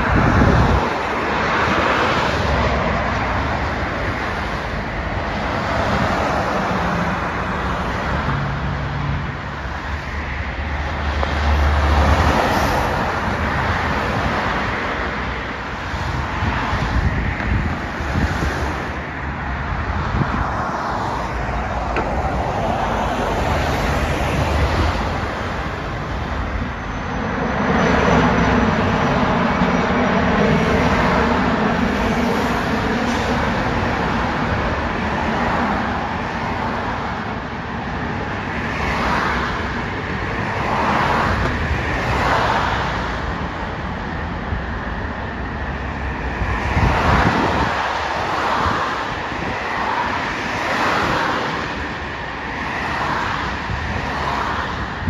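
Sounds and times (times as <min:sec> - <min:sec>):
airliner engine: 0:00.0 - 0:55.0
road traffic: 0:00.0 - 0:55.0
helicopter flying overhead: 0:22.8 - 0:35.2.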